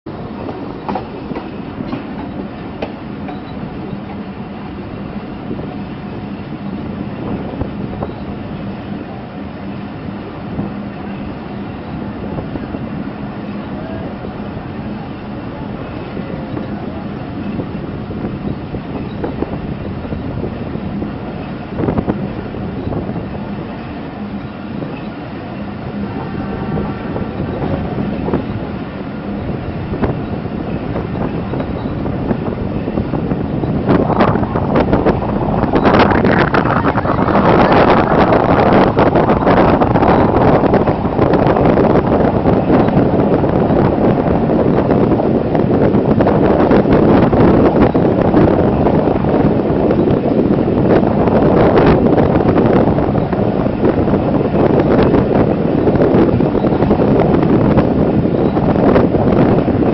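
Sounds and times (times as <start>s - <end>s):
train wheels rumbling on rails: 0.1s - 59.9s
clacks over rail joints: 0.3s - 4.2s.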